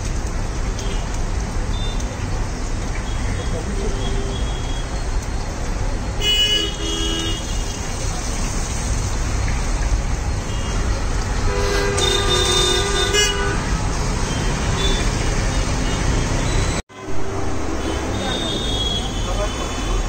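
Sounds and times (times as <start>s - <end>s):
street traffic noise: 0.0s - 20.0s
vehicle horns honking: 6.2s - 7.6s, 10.5s - 20.0s.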